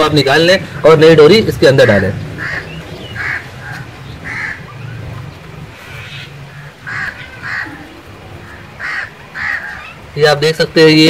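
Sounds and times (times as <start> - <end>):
crows cawing: 2.2 - 10.2.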